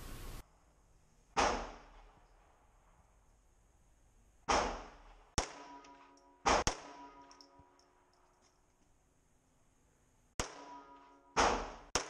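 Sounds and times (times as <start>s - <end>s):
sharp short cracks: 1.3s - 2.2s
pistol shots echoing: 1.4s - 2.2s, 4.5s - 7.7s, 10.4s - 12.0s.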